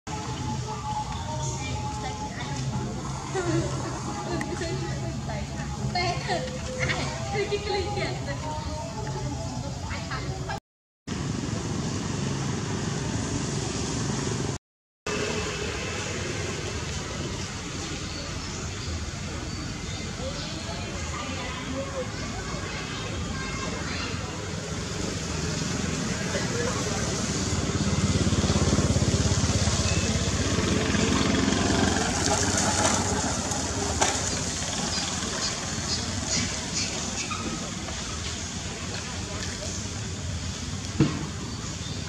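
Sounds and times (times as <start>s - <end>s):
outdoor rumble and hiss: 0.1s - 42.0s
small engine running: 25.8s - 36.0s.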